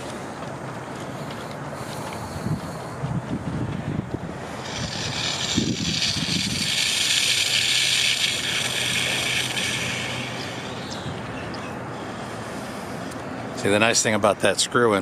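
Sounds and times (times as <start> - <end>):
low steady hum: 0.0 - 13.8
suction hissing rush: 4.2 - 11.4.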